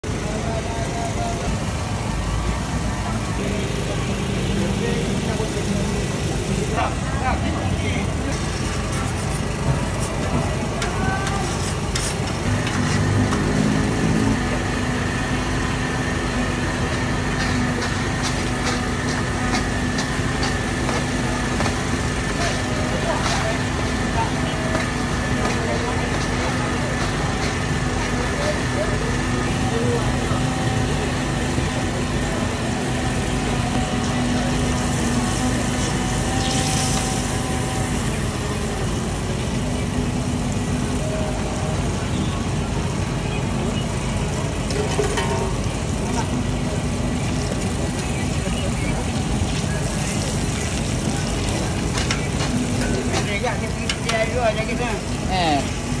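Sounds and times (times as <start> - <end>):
generator engine humming: 0.0 - 56.0
butter sizzling on a griddle: 0.2 - 56.0
griddle hiss: 32.3 - 41.9.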